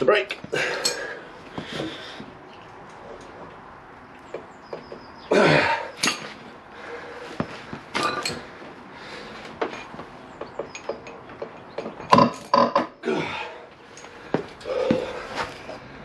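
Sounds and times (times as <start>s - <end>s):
person grunting with effort: 5.3s - 6.0s, 13.0s - 13.7s
metal clinks and knocks of tools: 6.0s - 6.4s, 7.9s - 8.5s, 9.6s - 12.9s, 13.9s - 14.7s.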